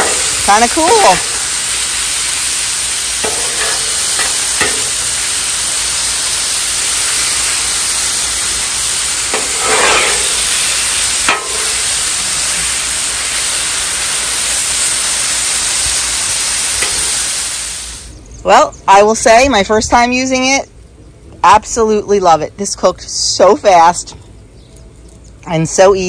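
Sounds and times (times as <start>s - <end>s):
chicken sizzling on griddle: 0.0s - 18.2s
metal spatula scraping steel: 3.2s - 5.1s, 9.3s - 11.9s.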